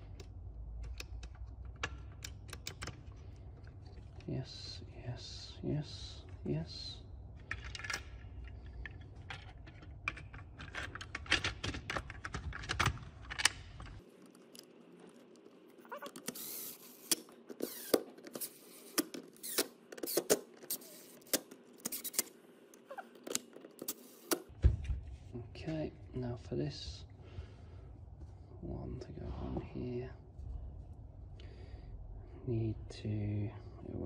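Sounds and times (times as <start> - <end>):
cordless driver driving screws: 15.9 - 22.3.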